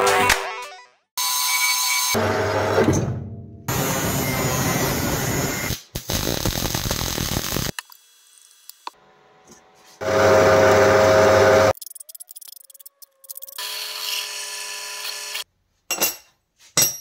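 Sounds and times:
power tool humming: 0:10.0 - 0:11.7, 0:13.6 - 0:15.4.

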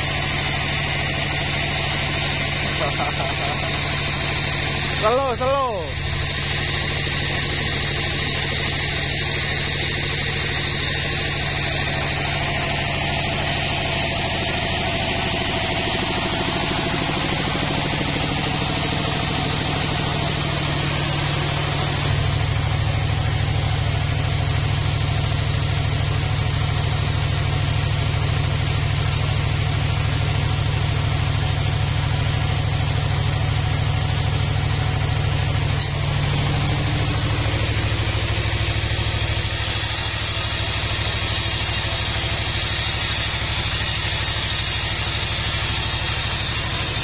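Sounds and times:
sawmill machinery droning: 0:00.0 - 0:47.0
thin high-pitched machine sound: 0:35.8 - 0:47.0.

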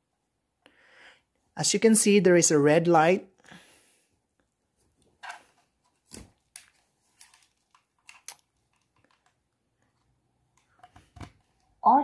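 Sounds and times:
plug clicks and handling rustles: 0:05.0 - 0:11.7.

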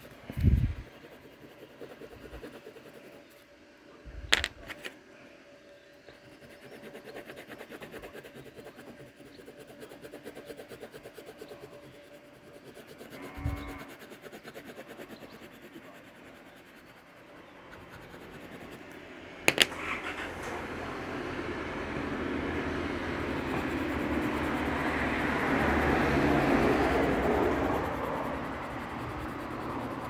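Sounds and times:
pencil shading on paper: 0:00.0 - 0:03.5, 0:06.1 - 0:19.1, 0:22.6 - 0:30.0.

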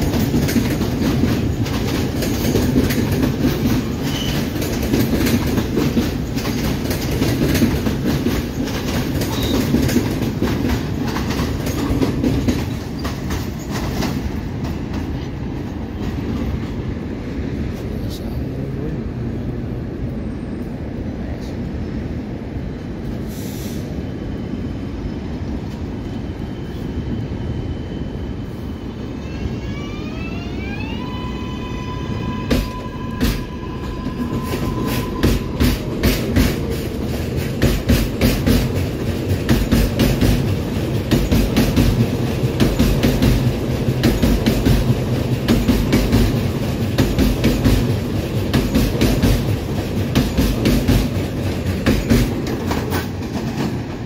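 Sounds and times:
wheels clattering over rail joints: 0:00.0 - 0:15.2, 0:34.0 - 0:54.0
train rumble: 0:00.0 - 0:54.0.

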